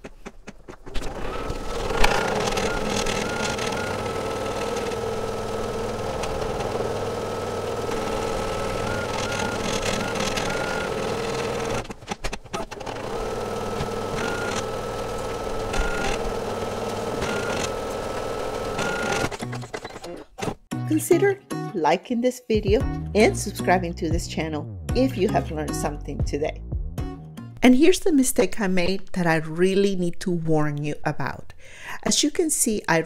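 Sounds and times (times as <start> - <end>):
embroidery machine stitching: 0.8 - 20.6.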